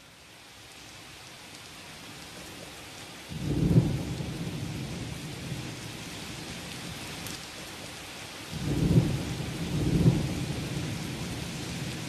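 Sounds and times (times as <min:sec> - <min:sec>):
steady rain: 0:00.0 - 0:12.0
thunder rumbling: 0:03.4 - 0:05.8, 0:08.5 - 0:12.0.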